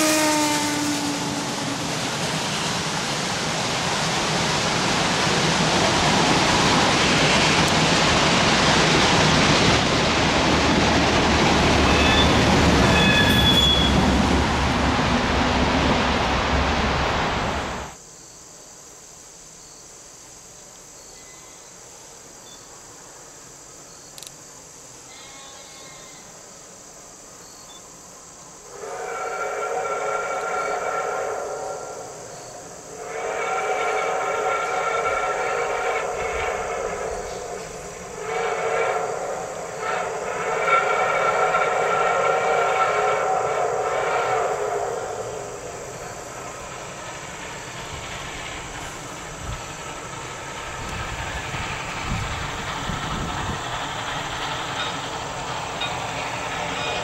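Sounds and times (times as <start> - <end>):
train whistle: 0.0 - 2.8, 11.7 - 14.2, 25.0 - 26.3, 28.7 - 46.9, 55.8 - 57.0
train wheels rumbling on rail: 0.0 - 18.0, 27.8 - 57.0
high-pitched squeal: 11.7 - 14.4.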